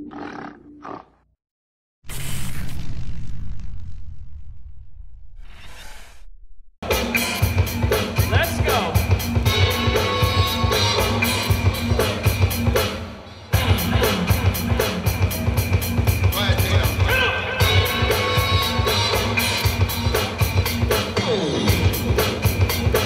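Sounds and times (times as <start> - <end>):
dance music with heavy drum beat: 6.8 - 13.0, 13.6 - 23.0.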